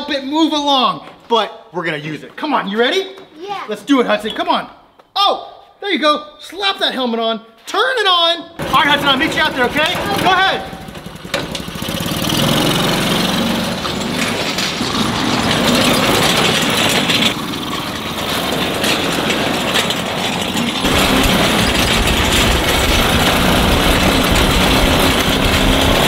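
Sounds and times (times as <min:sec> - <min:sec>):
small tractor engine running: 0:08.6 - 0:26.0.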